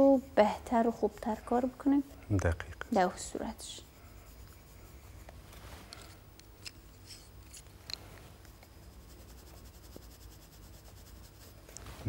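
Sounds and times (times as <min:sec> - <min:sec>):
low room hum: 0:00.0 - 0:12.0
pencil scratching on paper: 0:03.0 - 0:05.4, 0:08.4 - 0:12.0.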